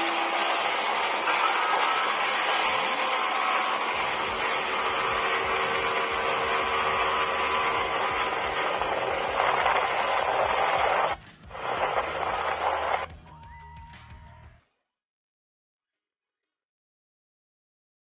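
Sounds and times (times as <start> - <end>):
boat rushing through water: 0.0 - 13.0
low hum: 0.0 - 13.2.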